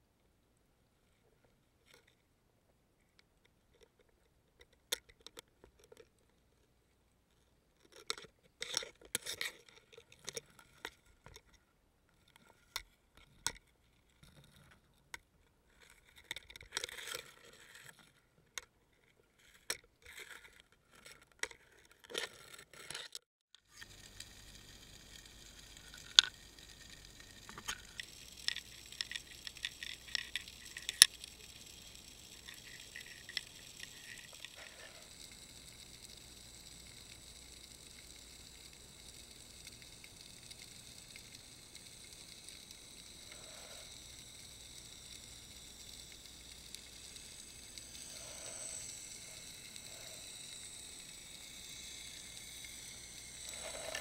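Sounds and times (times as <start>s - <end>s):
underwater hiss with clicks: 23.8s - 54.0s.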